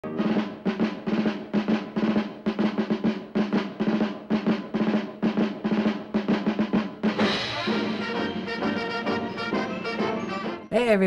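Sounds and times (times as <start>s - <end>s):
rapid drum rolls: 0.0s - 10.6s
loud crash: 7.0s - 10.5s
band with brass playing: 7.1s - 10.7s.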